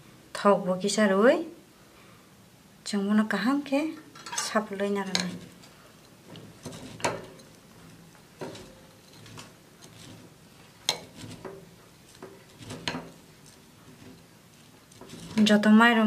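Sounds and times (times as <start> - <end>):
metal spoon mixing in glass bowl: 4.2 - 16.0.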